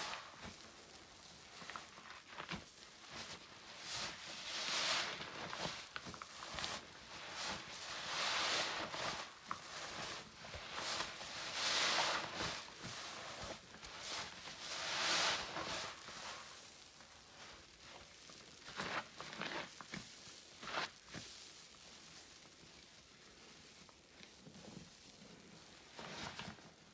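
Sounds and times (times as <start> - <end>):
wet sponge squishing: 0.0 - 26.9.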